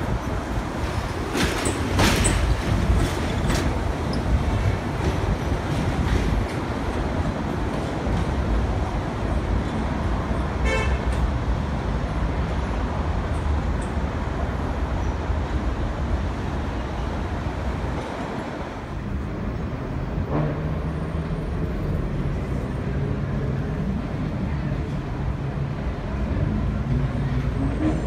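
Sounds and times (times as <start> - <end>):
elevated train rumbling: 0.0 - 28.0
train horn toot: 10.6 - 11.2.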